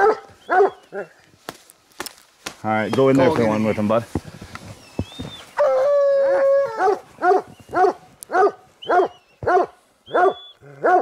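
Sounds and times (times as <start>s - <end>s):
dog barking: 0.0s - 1.1s, 6.8s - 11.0s.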